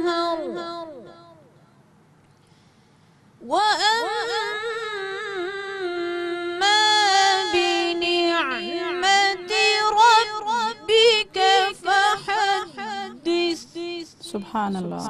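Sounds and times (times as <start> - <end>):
woman breathing: 2.4 - 3.4
woman reciting melodically: 3.4 - 15.0.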